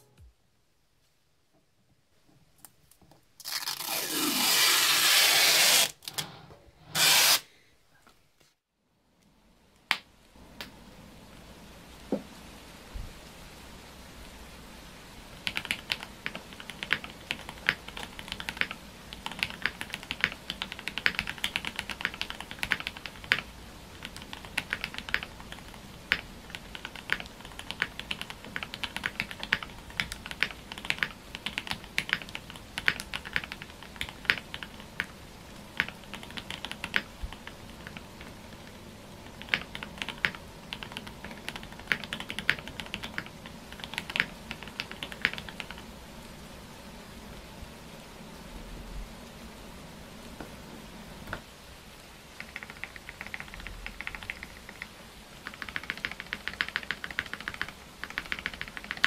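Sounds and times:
mechanical keyboard typing: 0:15.4 - 0:35.1, 0:35.8 - 0:45.9, 0:52.4 - 0:59.0.

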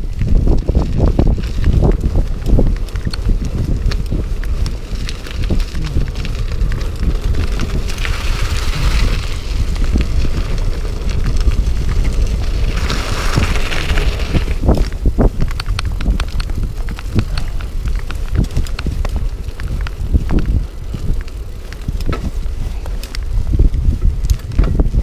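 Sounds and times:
tyres crunching on gravel: 0:00.0 - 0:24.9
bike clicks and rattles: 0:00.0 - 0:25.0
wind buffeting microphone: 0:00.0 - 0:25.0.

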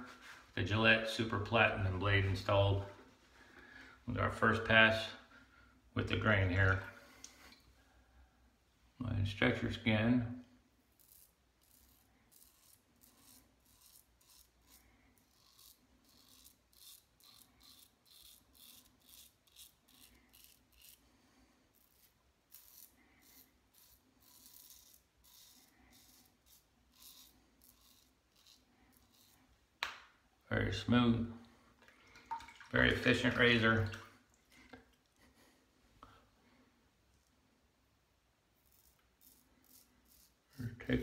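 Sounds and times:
razor scraping whiskers: 0:10.9 - 0:21.1, 0:21.7 - 0:29.6, 0:38.6 - 0:41.0.

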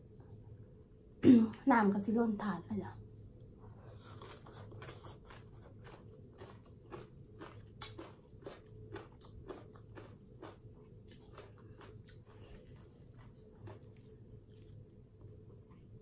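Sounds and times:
chewing crunchy food: 0:03.7 - 0:16.0.

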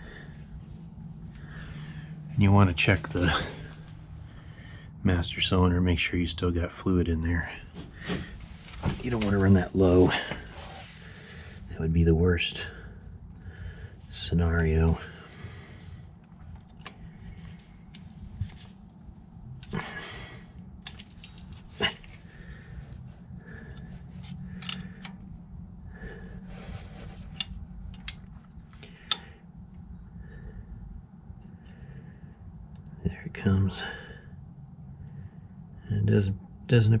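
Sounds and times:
breathy noises: 0:00.0 - 0:05.0, 0:07.5 - 0:11.8, 0:14.8 - 0:32.5
steady low hum: 0:00.0 - 0:37.0.

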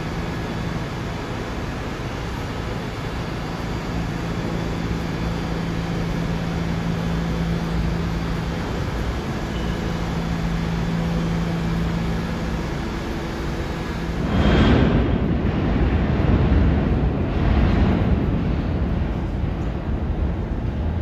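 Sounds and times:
low hum: 0:00.0 - 0:21.0
subway train rumble: 0:00.0 - 0:21.0.

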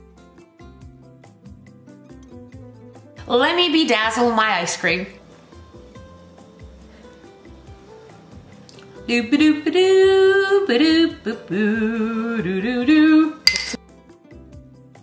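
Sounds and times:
soft background music: 0:00.0 - 0:15.0
woman singing wavering notes: 0:09.1 - 0:13.8
metal spoon clinking on glass: 0:13.5 - 0:13.8.

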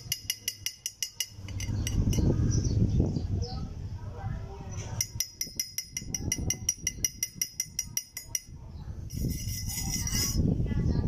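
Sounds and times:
chipping hammer tapping on steel pipe: 0:00.0 - 0:02.2, 0:05.0 - 0:08.5
wire brush scraping: 0:09.1 - 0:10.4.

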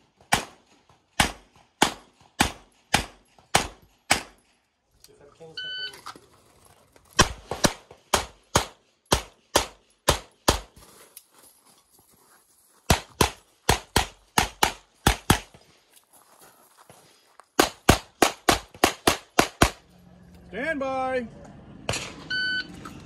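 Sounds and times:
rapid pistol fire: 0:01.2 - 0:04.4, 0:17.6 - 0:19.8.

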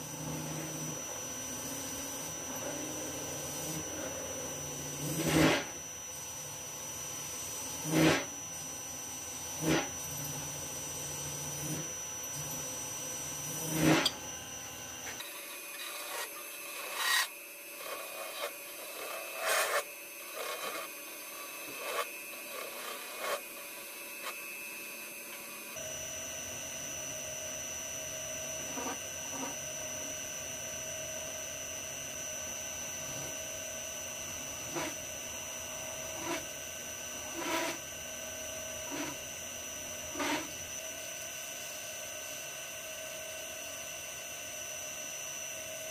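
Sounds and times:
tool scraping metal: 0:05.0 - 0:05.8, 0:07.7 - 0:08.4, 0:09.6 - 0:10.3, 0:13.4 - 0:14.2, 0:15.0 - 0:24.5, 0:34.6 - 0:35.0, 0:36.0 - 0:36.6, 0:37.2 - 0:37.9, 0:38.8 - 0:39.3, 0:40.0 - 0:40.7
lathe whining: 0:11.6 - 0:25.8, 0:37.1 - 0:37.9, 0:38.7 - 0:41.3.

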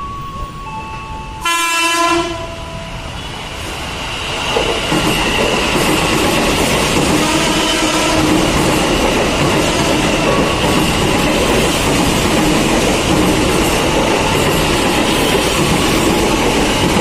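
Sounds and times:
train horn blast: 0:01.4 - 0:02.9, 0:07.2 - 0:08.3
train wheels clattering on rails: 0:02.9 - 0:17.0.

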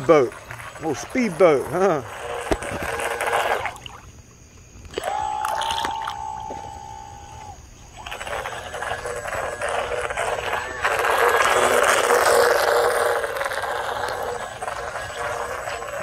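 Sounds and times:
electric motor whine: 0:00.0 - 0:03.8, 0:04.9 - 0:16.0.

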